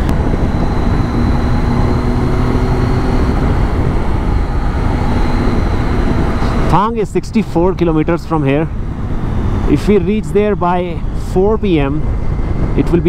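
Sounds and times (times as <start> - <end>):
motorcycle engine cruising: 0.0 - 12.9
wind rushing over microphone: 0.0 - 13.0.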